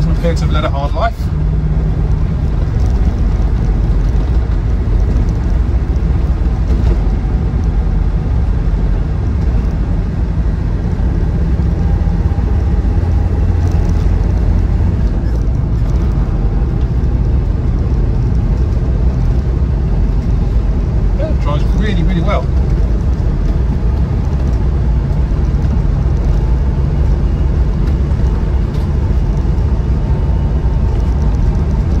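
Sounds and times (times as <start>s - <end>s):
diesel engine running: 0.0s - 32.0s
tyre and road noise: 0.0s - 32.0s.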